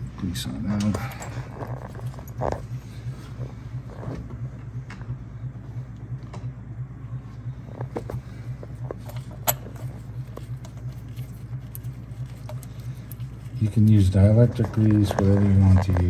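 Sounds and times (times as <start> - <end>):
low humming drone: 0.0 - 16.0
small metal parts clinking: 9.0 - 16.0.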